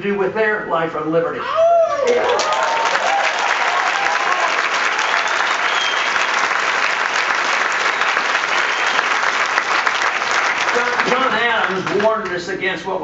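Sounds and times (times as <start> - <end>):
large audience applauding: 2.0 - 12.4.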